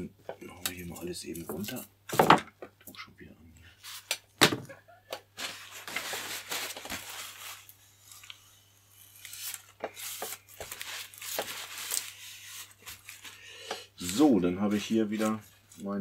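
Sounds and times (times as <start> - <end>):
paper towel rustling and crinkling: 5.3 - 8.4, 9.1 - 13.4, 14.0 - 16.0.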